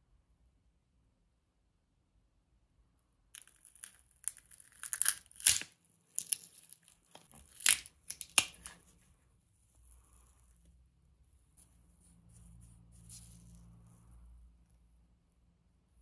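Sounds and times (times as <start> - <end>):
sharp scrapes and cracks: 3.4 - 10.7.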